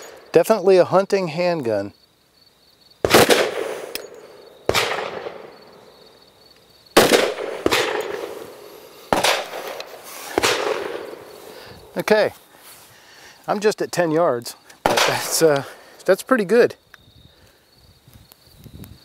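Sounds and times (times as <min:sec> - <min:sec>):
pistol shots with echo: 0:03.0 - 0:05.6, 0:07.0 - 0:11.3, 0:14.8 - 0:15.5.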